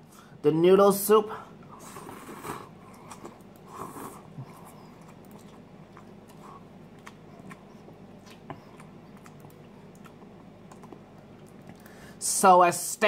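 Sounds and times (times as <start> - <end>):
soft chewing: 1.6 - 12.2
slurping noodles: 1.7 - 5.6.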